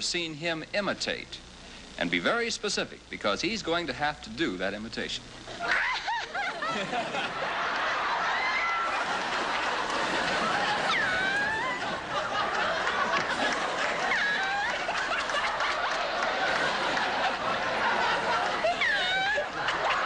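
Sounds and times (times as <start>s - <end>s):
crowd laughing: 5.5s - 20.0s
high-pitched laughs: 5.6s - 20.0s.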